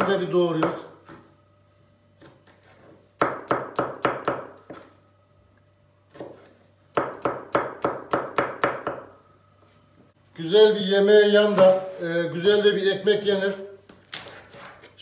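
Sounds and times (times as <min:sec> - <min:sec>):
knife chopping on wooden board: 0:02.2 - 0:04.9, 0:06.1 - 0:09.1.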